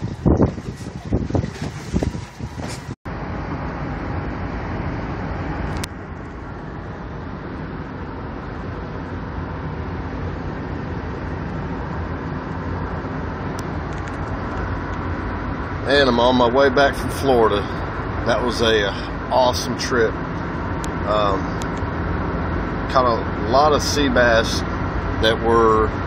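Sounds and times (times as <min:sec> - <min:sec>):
car road noise from inside: 0:00.0 - 0:26.0.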